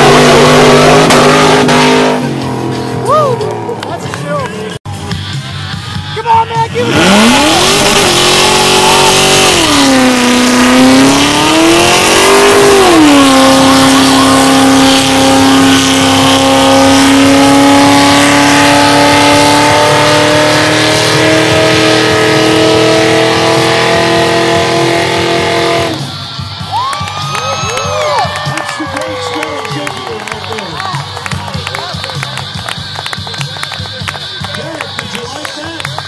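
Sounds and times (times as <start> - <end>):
car engine revving hard: 0.0 - 4.2, 6.7 - 26.5.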